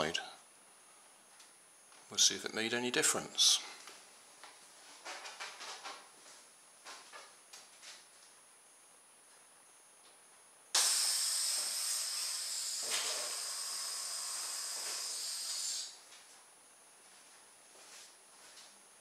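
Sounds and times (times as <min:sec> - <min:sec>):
air hissing out of balloon: 0:10.8 - 0:16.0.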